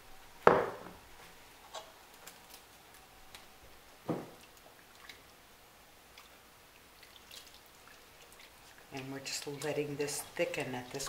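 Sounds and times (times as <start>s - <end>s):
knock: 0.4s - 1.0s, 4.1s - 4.4s.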